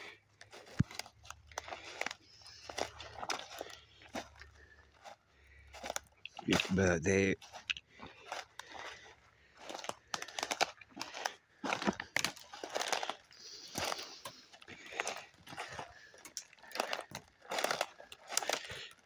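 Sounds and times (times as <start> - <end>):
footsteps crunching dry leaves: 0.0 - 19.0.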